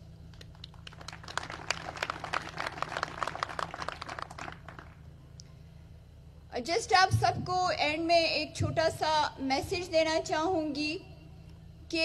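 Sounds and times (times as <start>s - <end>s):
audience applauding: 0.4s - 5.0s.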